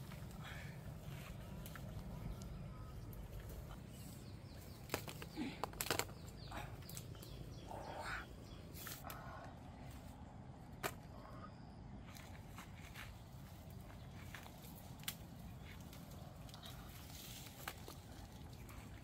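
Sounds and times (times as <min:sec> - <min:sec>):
rustling foliage: 0:00.0 - 0:10.2, 0:12.0 - 0:19.0
twigs snapping: 0:01.2 - 0:03.8, 0:04.4 - 0:07.8, 0:13.8 - 0:19.0.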